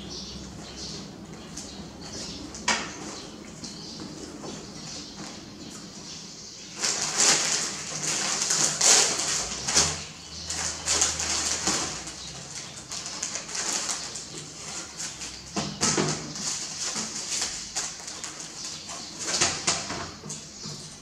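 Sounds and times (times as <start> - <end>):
plastic wrappers crinkling: 6.7 - 15.5, 16.1 - 20.1.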